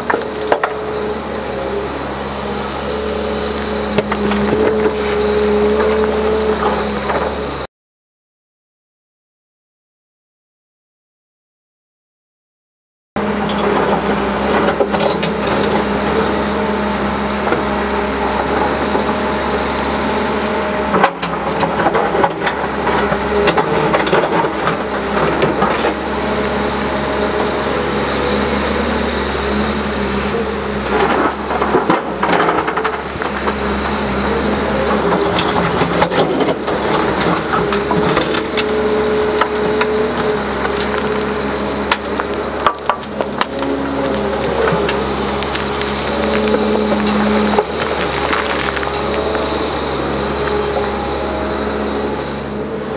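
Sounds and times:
excavator engine and hydraulics: 0:00.0 - 0:07.7, 0:13.2 - 0:52.9
roots cracking: 0:37.0 - 0:50.7
bucket tearing through stony ground: 0:41.9 - 0:49.7.

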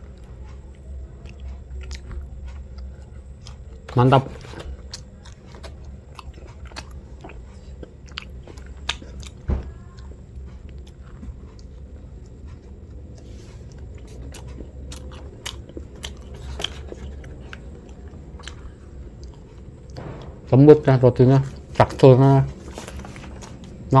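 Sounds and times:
man chewing with mouth smacks: 0:00.0 - 0:20.1.

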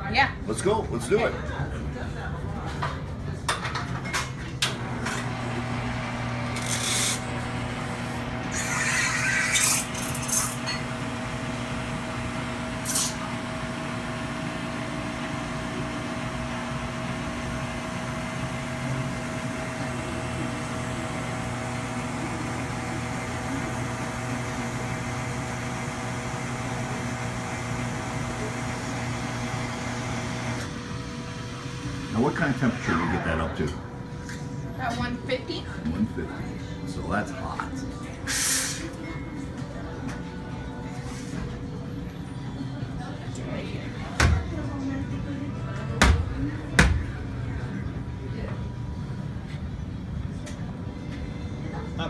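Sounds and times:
espresso machine pump humming: 0:04.8 - 0:32.7
short hisses: 0:38.2 - 0:38.9.

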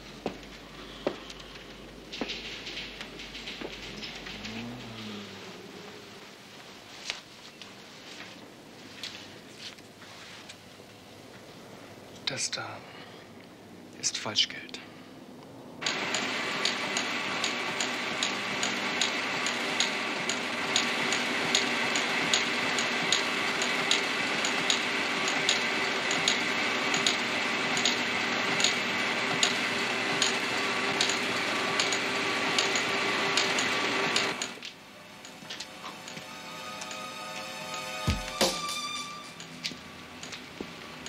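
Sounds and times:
printing press whirring and clacking: 0:15.8 - 0:38.7
quiet music: 0:34.8 - 0:41.0.

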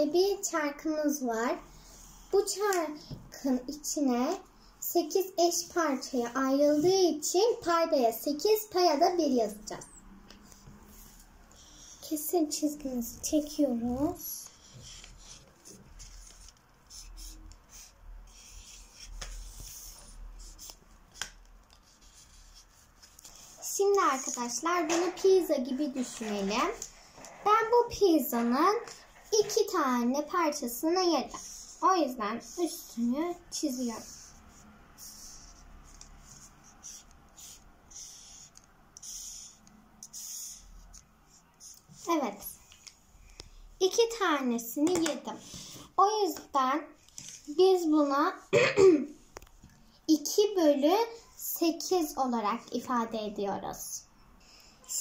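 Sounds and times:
marker scratching on paper plate: 0:09.8 - 0:42.9.

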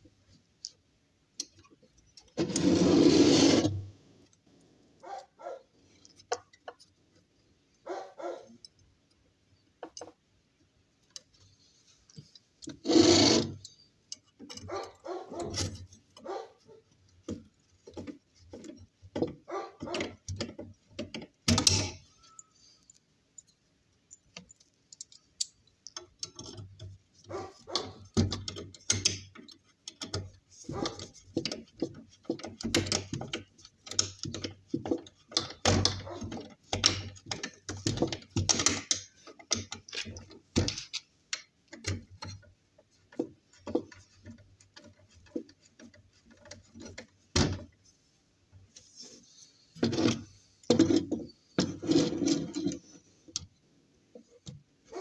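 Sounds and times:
clicks scrapes and creaks: 0:01.4 - 0:04.5, 0:05.1 - 0:07.3, 0:11.0 - 0:23.1, 0:24.1 - 0:47.9, 0:48.5 - 0:55.0
screwdriver driving screws: 0:12.8 - 0:13.6.

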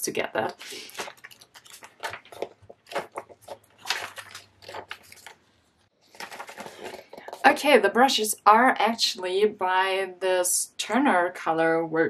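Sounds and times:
paper pages flipping: 0:00.5 - 0:07.6.

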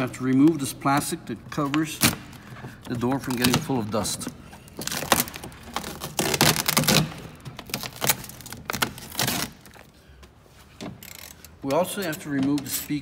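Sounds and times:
plastic sheet crinkling: 0:04.7 - 0:09.9.

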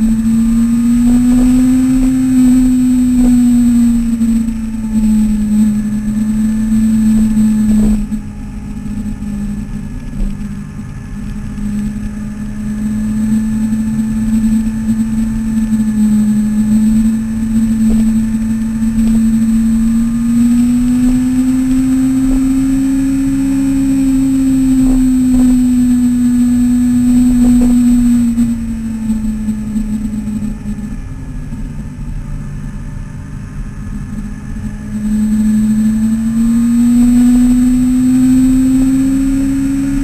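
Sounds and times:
motorcycle engine running: 0:00.0 - 0:40.0
wind noise: 0:00.0 - 0:40.0.

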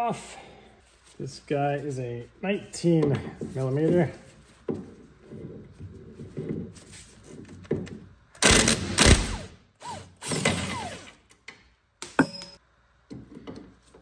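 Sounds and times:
impact wrench running: 0:08.4 - 0:11.2.

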